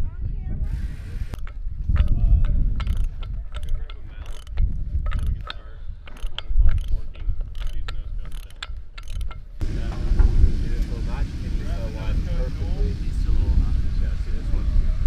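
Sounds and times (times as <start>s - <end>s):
metal fitting clicking and scraping: 1.4s - 9.6s
low rumble: 9.6s - 15.0s.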